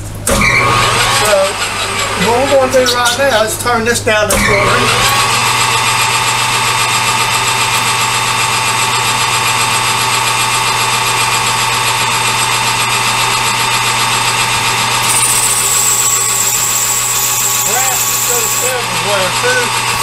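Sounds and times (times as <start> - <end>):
metal lathe running: 0.3 - 3.2, 4.4 - 20.0
high whine: 14.9 - 20.0.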